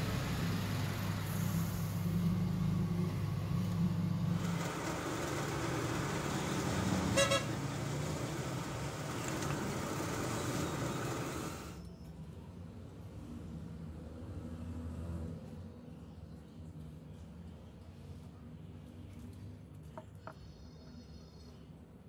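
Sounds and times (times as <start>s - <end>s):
metal lathe humming: 3.6s - 11.8s
drill press boring steel: 4.2s - 11.8s
short horn-like toot: 7.1s - 7.6s.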